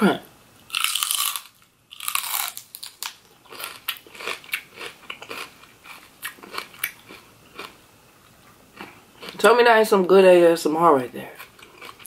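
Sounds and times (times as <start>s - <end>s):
crunchy chewing: 0.7s - 9.4s, 11.3s - 12.0s.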